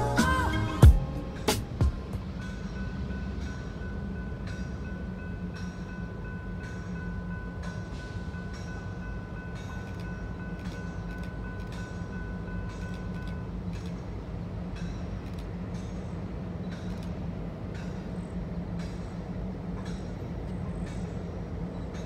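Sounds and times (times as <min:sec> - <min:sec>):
distant freight train rumble: 0:00.0 - 0:22.0.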